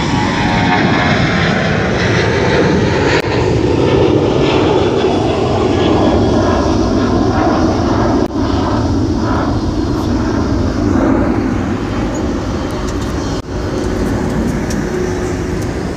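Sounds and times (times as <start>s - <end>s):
jet engines running: 0.0s - 15.9s.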